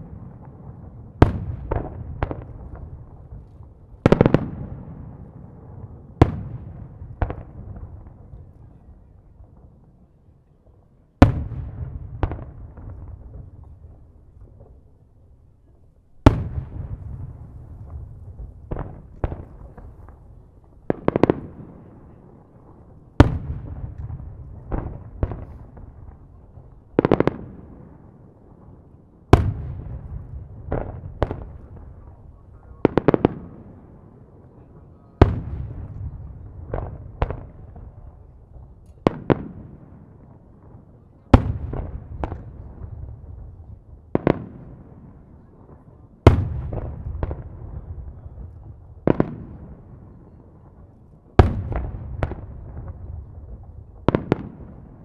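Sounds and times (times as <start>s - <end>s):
small firework cracks: 0.0s - 5.3s, 15.6s - 22.2s, 29.3s - 33.7s, 35.2s - 55.0s.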